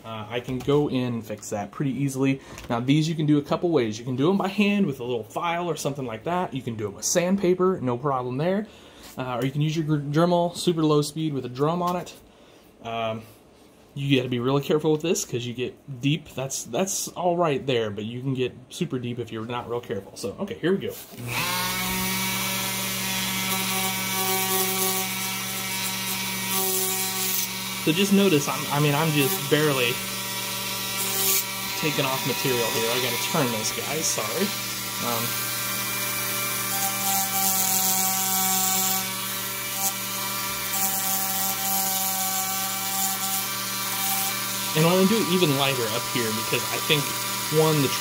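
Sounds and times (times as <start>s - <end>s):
rotary tool motor hum: 21.2s - 48.0s.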